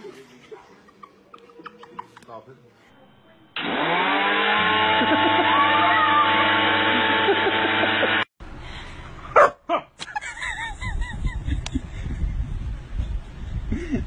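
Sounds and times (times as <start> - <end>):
small electric motor whining: 3.6 - 8.3.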